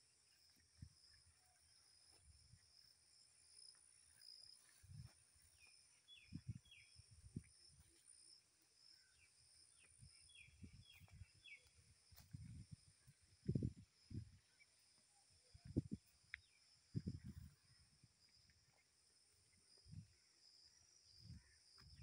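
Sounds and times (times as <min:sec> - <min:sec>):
footsteps on a dirt path: 0:03.7 - 0:08.4, 0:09.7 - 0:13.7.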